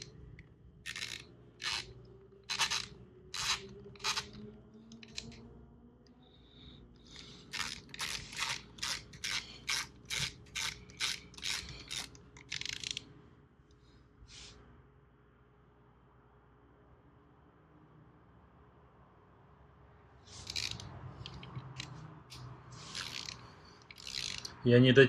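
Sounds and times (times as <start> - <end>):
torque wrench ratcheting: 0.9 - 1.9, 2.5 - 4.4, 5.0 - 5.4, 7.1 - 13.0, 20.3 - 22.0, 22.8 - 24.6.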